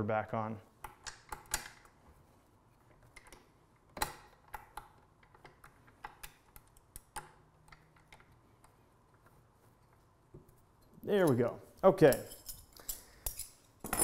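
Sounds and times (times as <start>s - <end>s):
metallic clicks of tools on bolts: 11.2s - 14.0s.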